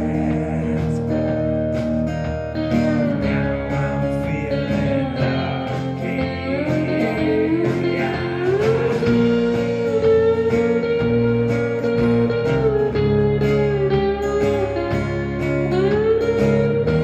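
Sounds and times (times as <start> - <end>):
live rock band playing: 0.0 - 17.0
lead guitar note sliding upward: 6.4 - 17.0.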